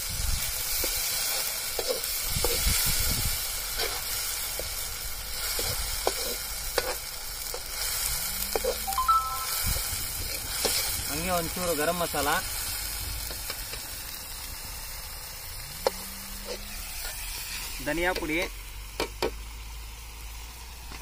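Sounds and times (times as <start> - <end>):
paste sizzling in hot oil: 0.0 - 21.0
metal ladle scraping a pan: 5.5 - 8.9, 15.8 - 17.7.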